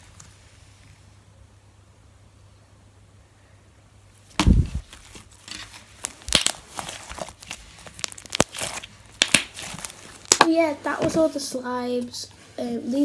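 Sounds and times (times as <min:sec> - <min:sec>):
slime crackling and popping: 0:04.3 - 0:10.6
dull thump: 0:04.4 - 0:04.8.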